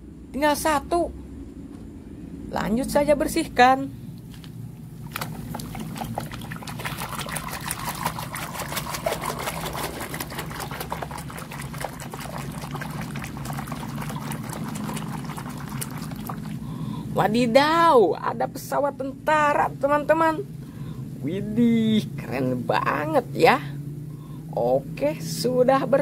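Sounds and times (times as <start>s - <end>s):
water sloshing and splashing: 5.0s - 16.8s.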